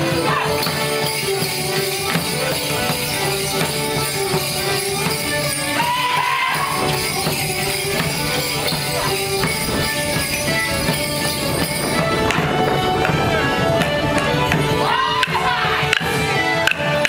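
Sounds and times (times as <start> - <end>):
band playing dance tune: 0.0 - 17.0
jingling bells: 0.0 - 17.0
sticks clacking: 13.8 - 17.0.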